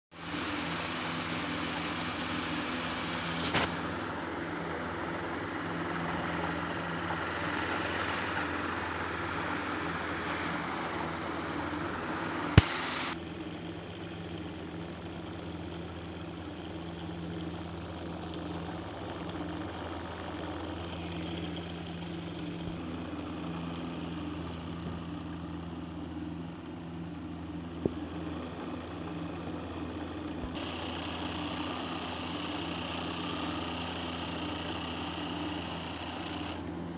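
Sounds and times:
small electric motor whirring: 0:00.2 - 0:04.0, 0:30.5 - 0:36.9
high-pitched whine: 0:12.4 - 0:13.2
sharp click: 0:12.6 - 0:13.2.

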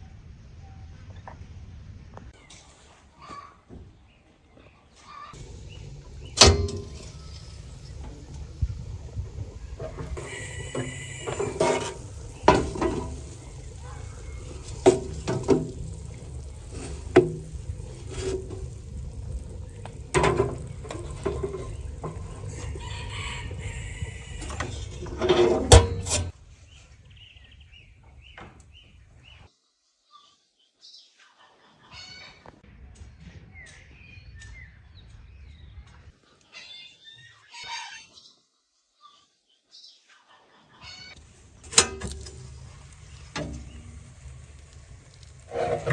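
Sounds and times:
metal oven door and tray clanking: 0:05.4 - 0:08.6, 0:09.7 - 0:26.4, 0:41.6 - 0:44.0.

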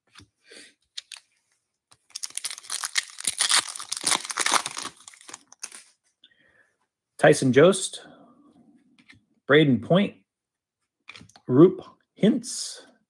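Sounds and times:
foil wrapper crinkling: 0:02.0 - 0:05.9.

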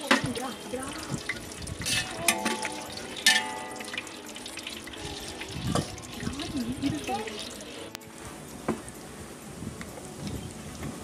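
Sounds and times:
cashews sizzling in ghee: 0:00.0 - 0:08.3
metal ladle scraping pot: 0:01.1 - 0:07.9.

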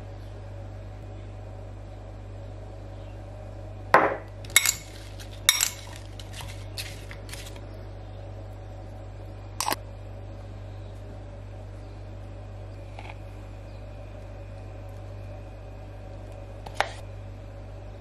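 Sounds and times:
metal spoon clinking on glass bowl: 0:04.5 - 0:06.0.

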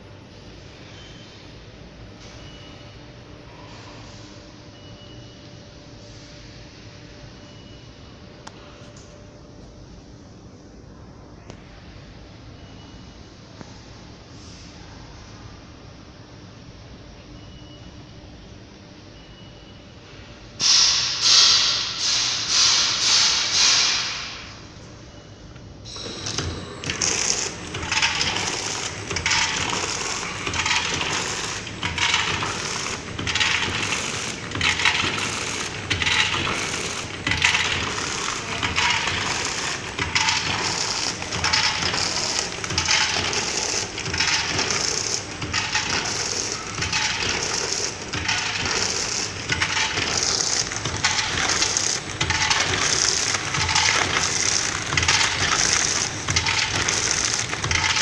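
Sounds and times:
packaging machine clatter: 0:25.9 - 0:58.0.

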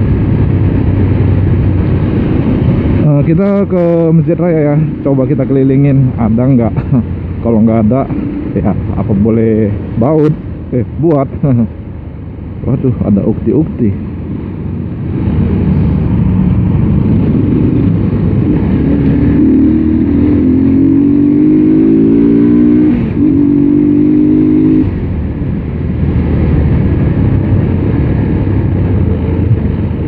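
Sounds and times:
wind rumble on microphone: 0:00.0 - 0:30.0
motorcycle engine under throttle: 0:15.2 - 0:24.8.

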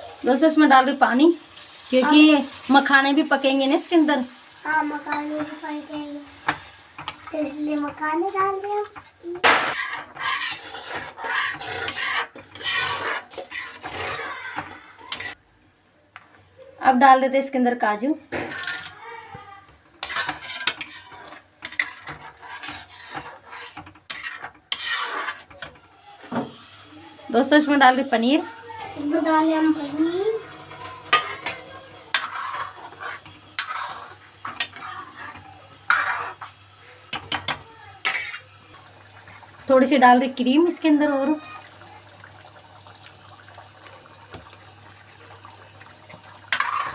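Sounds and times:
metal spatula scraping a pot: 0:09.5 - 0:15.4, 0:18.3 - 0:19.0, 0:20.0 - 0:26.5, 0:29.6 - 0:36.6, 0:37.4 - 0:38.5, 0:46.5 - 0:46.9.

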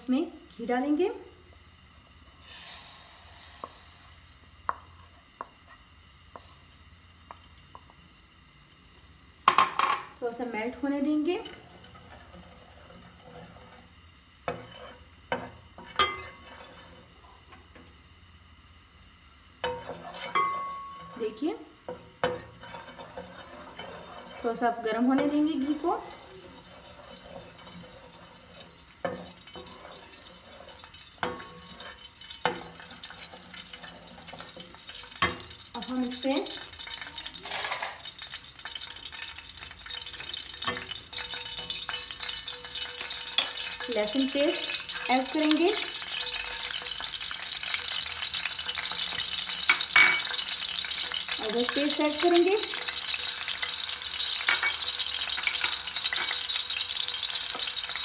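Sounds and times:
wooden spoon stirring in pot: 0:11.0 - 0:17.1, 0:19.6 - 0:37.3, 0:38.1 - 0:58.0.

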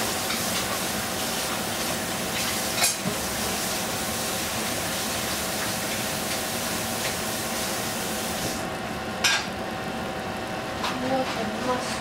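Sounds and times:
vegetables sizzling in a pot: 0:00.0 - 0:08.6.

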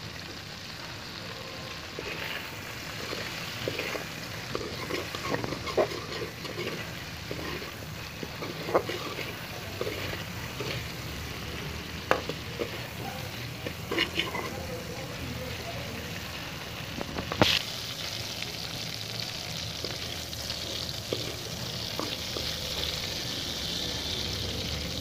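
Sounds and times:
vegetables sizzling in hot oil: 0:00.0 - 0:25.0
spatula scraping metal pan: 0:01.9 - 0:14.8, 0:19.8 - 0:23.1.

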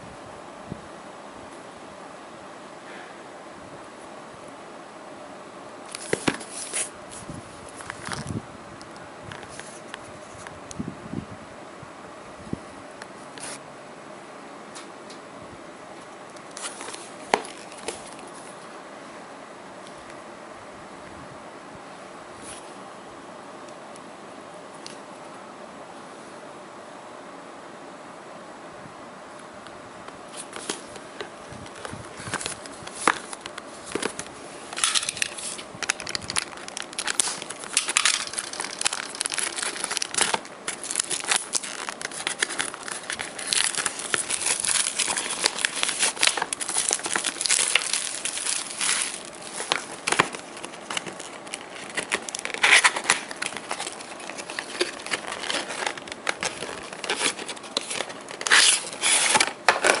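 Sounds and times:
plastic wrap crinkling and tearing: 0:31.7 - 1:00.0.

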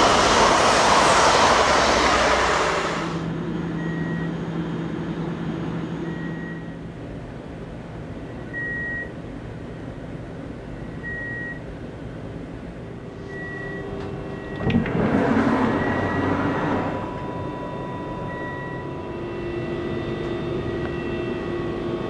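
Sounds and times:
sliding door motor whooshing: 0:00.0 - 0:03.3, 0:14.0 - 0:20.6
steady low hum: 0:00.0 - 0:22.0
short high beep: 0:15.8 - 0:21.7.

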